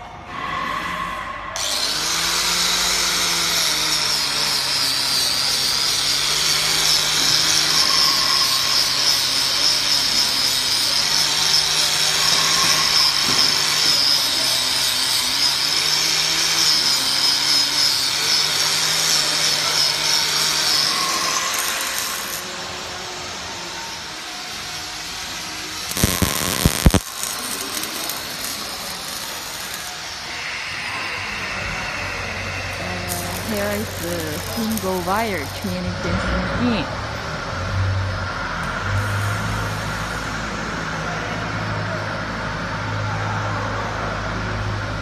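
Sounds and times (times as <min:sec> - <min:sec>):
angle grinder grinding metal: 0:01.6 - 0:36.0.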